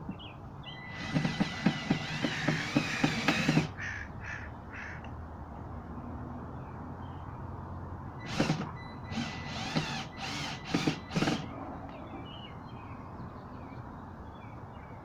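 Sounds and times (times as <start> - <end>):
cordless drill driving screws: 0.9 - 3.8, 8.2 - 11.5.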